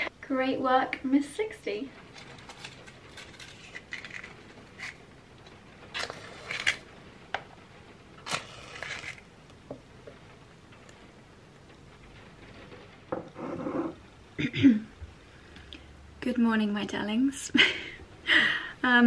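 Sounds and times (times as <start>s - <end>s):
match striking: 8.2s - 9.3s.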